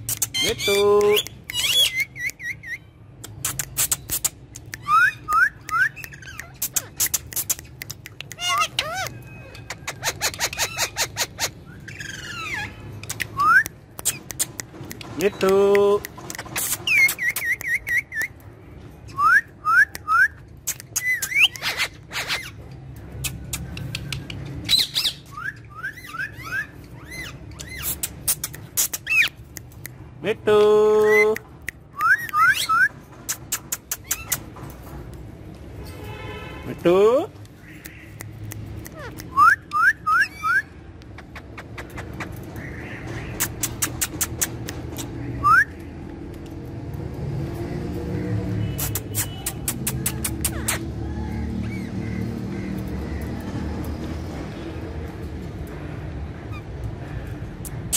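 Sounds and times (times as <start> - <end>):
parakeet clicks: 0.0 - 12.2, 13.0 - 18.5, 19.9 - 21.6, 22.8 - 24.7, 27.6 - 30.1, 31.3 - 34.5, 37.4 - 39.9, 41.0 - 48.0, 48.8 - 50.9
parakeet whistling: 1.5 - 2.9, 24.7 - 28.0, 32.0 - 33.0, 38.9 - 40.8.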